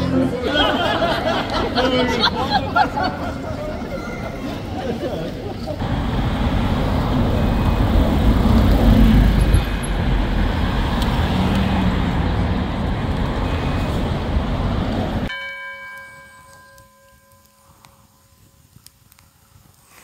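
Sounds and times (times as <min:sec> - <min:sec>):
traffic rumble: 0:00.0 - 0:15.4
bell-like ringing tone: 0:15.3 - 0:18.5.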